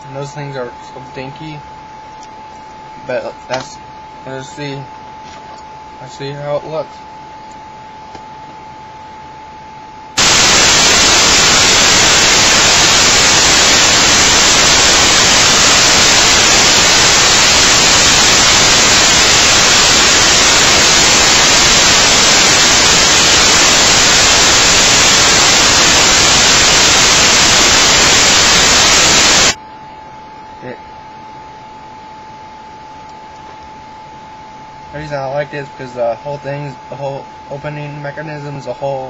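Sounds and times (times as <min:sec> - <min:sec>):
faint steady hum: 0:00.0 - 0:39.0
loud static hiss: 0:10.1 - 0:31.6, 0:34.6 - 0:39.0.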